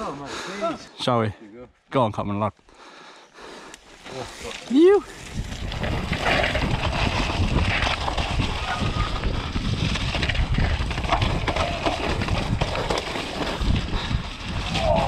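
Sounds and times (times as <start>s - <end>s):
bike tyres through mud: 3.8s - 15.0s
wind on microphone: 5.0s - 15.0s
bike rattling and knocking: 5.3s - 15.0s.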